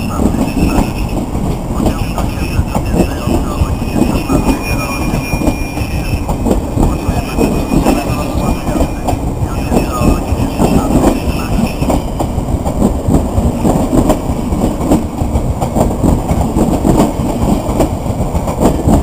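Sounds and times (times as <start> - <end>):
train rumbling past: 0.0 - 19.0
wheels clacking over rail joints: 10.1 - 19.0.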